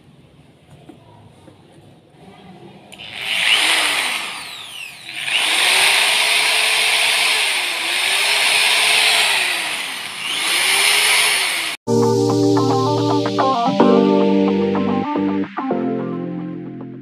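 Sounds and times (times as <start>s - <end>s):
electric drill motor whine: 3.0s - 11.8s.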